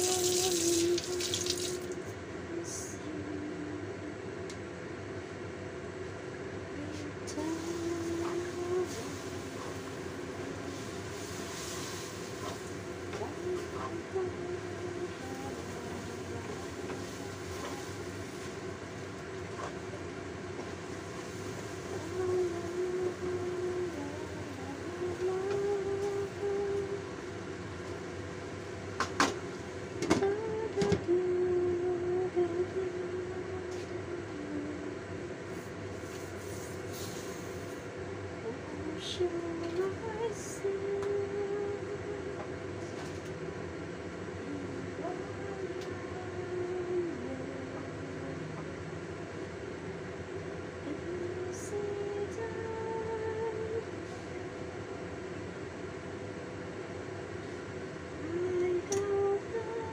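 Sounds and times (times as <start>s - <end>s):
wok simmering on gas burner: 7.6s - 14.1s, 14.8s - 25.2s
food sizzling in a wok: 8.9s - 12.9s.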